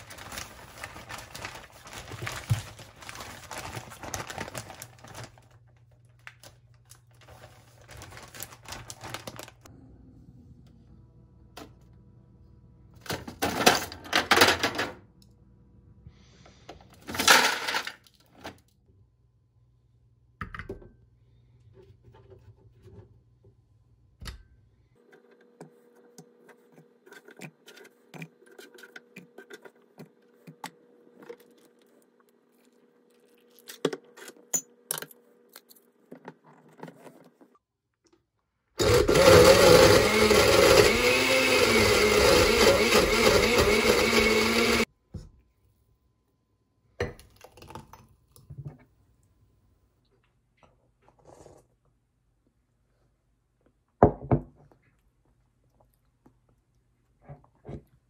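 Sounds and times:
blender running: 38.8s - 44.9s.

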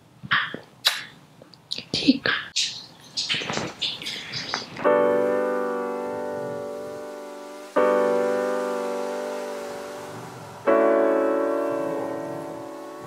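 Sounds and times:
slow piano chords: 4.0s - 13.0s.

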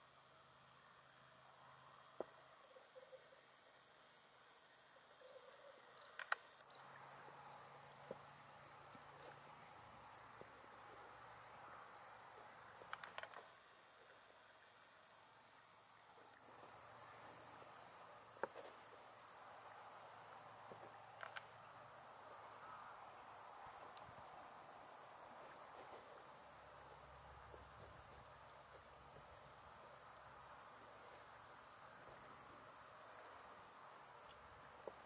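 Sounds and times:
insects trilling: 0.2s - 35.0s
sharp clicks: 6.1s - 6.5s, 12.9s - 13.4s.

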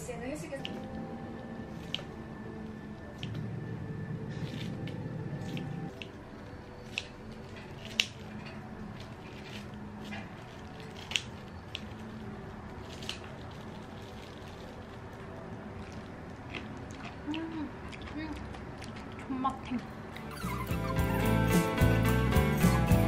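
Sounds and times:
low hum: 0.0s - 17.8s
scissors snipping cabbage: 6.8s - 12.0s.

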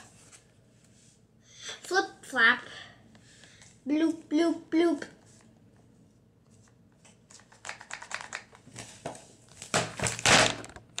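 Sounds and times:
book closing rustle and knock: 7.2s - 11.0s.

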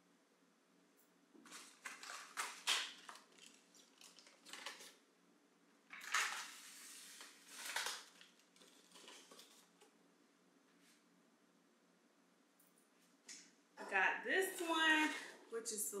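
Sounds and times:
plastic containers rustling and knocking: 1.4s - 5.0s.

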